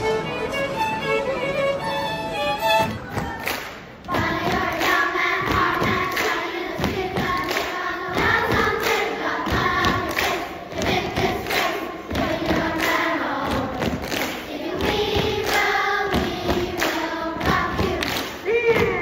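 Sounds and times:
string ensemble playing: 0.0 - 3.1
beat of thumps and claps: 2.8 - 19.0
children's choir singing: 3.0 - 19.0.

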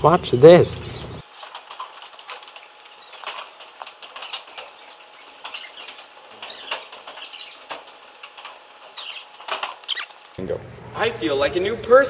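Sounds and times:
hand mop scuffing and squeaking: 2.8 - 8.0, 8.8 - 10.1.

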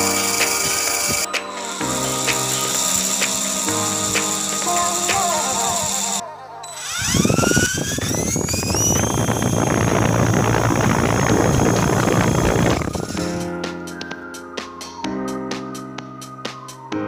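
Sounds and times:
toy motor whining and rattling: 0.0 - 13.3.

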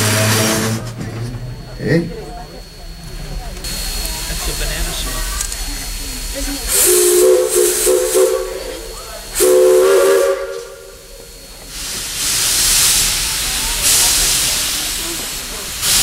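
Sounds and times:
loud steam hiss: 0.0 - 16.0
steam whistle toots: 6.7 - 11.4.

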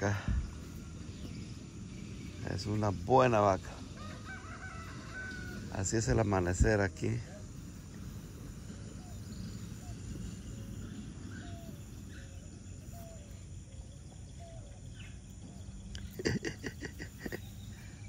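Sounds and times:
faint bird chirps: 5.3 - 18.0
rapid close-up noises: 15.6 - 18.0.

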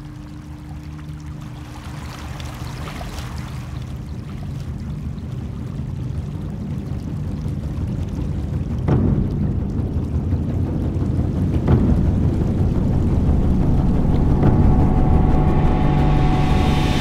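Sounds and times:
stream rushing over stones: 0.0 - 17.0
sudden loud hit: 8.9 - 10.2, 11.5 - 17.0.

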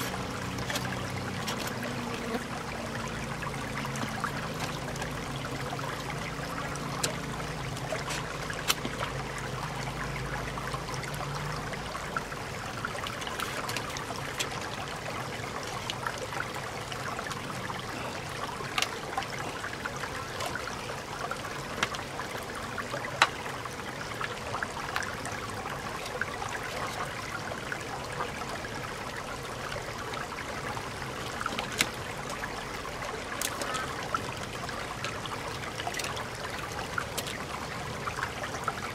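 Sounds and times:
stream water over rocks: 0.0 - 38.9.

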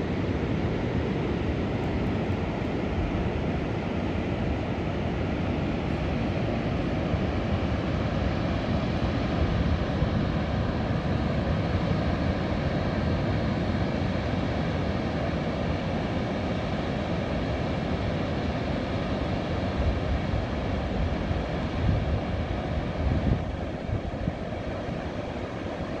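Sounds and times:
ocean surf: 0.0 - 26.0
wind rumbling on microphone: 19.7 - 26.0.

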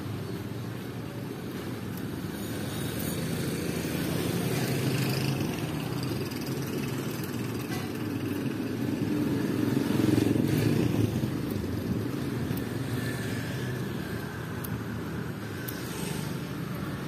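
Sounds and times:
motorcycle engines running: 0.0 - 17.0.

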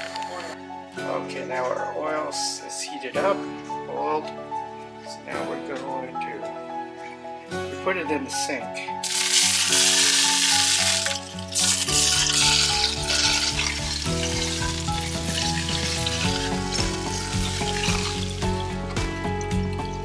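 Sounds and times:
background music: 0.0 - 20.0
hot oil sizzling on fish: 9.0 - 18.8.

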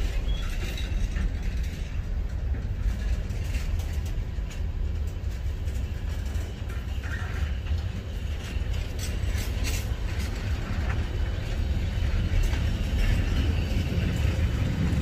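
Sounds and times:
freight wagons rolling on rails: 0.0 - 15.0.

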